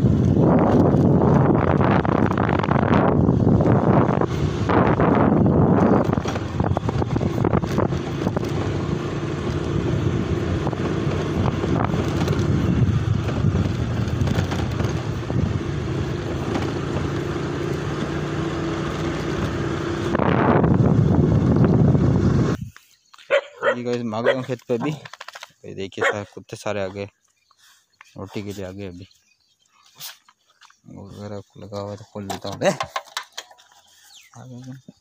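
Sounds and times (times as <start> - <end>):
motorcycle engine running: 0.0 - 22.6
wind buffeting microphone: 0.0 - 22.7.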